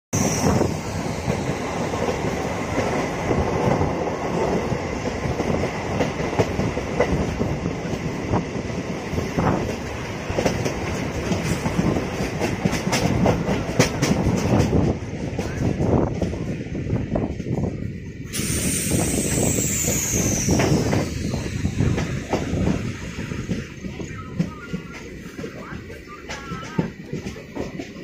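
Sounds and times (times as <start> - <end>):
train wheels rumbling on rails: 0.2 - 28.0
sharp track clicks: 9.4 - 16.4, 19.5 - 28.0.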